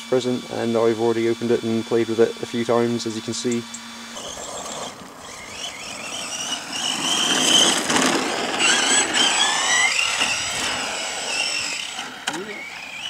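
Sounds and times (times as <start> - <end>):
electric motor whine: 0.0 - 13.0.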